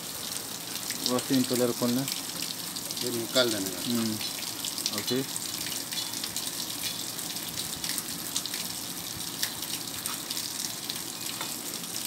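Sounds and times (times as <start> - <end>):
water-like rushing noise: 0.0 - 2.4.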